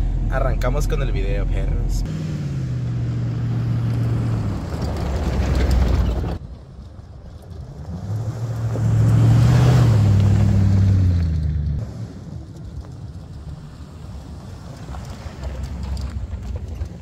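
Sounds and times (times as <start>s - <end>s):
car engine driving over dirt: 2.0s - 17.0s.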